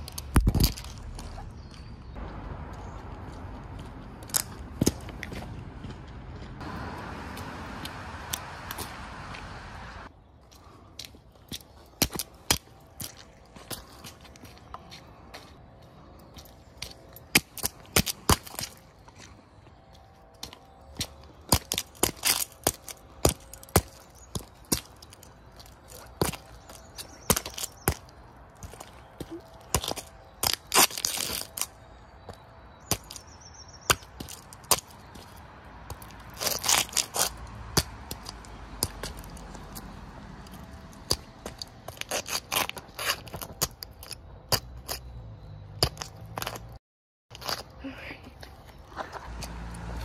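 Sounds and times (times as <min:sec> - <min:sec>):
toy car cracking underfoot: 0:00.0 - 0:01.4, 0:21.5 - 0:28.9, 0:29.6 - 0:31.8, 0:35.9 - 0:39.9.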